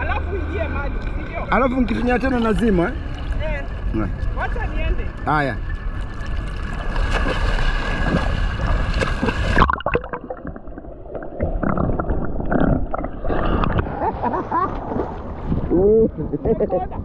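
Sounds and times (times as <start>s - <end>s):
water splashing against camera: 1.0s - 15.8s
underwater gurgling and bubbling: 6.0s - 15.6s.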